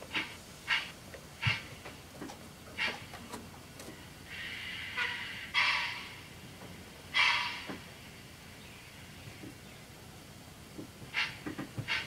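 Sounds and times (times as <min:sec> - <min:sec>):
steam puffs from small speaker: 0:04.2 - 0:06.1
steam hisses: 0:04.2 - 0:09.4.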